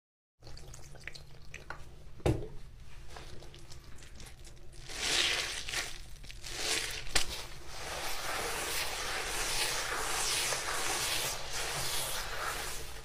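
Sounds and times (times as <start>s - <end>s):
sponge and foam crackling: 4.8s - 13.0s
sponge hissing squish: 4.8s - 13.0s.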